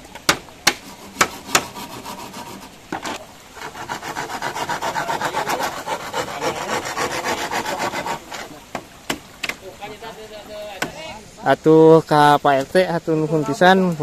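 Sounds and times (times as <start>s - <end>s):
hand saw rasping through bamboo: 0.6s - 8.6s
light knocks on bamboo: 8.7s - 9.6s.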